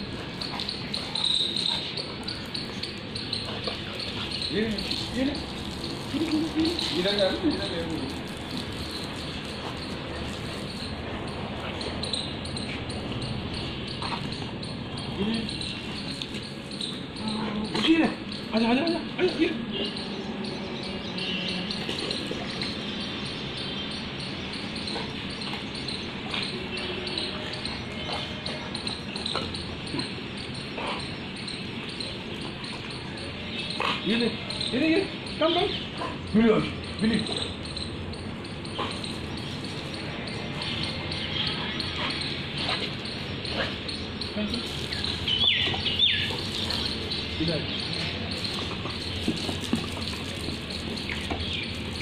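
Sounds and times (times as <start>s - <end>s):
water spraying from garden hose: 0.1s - 11.7s, 44.4s - 52.0s.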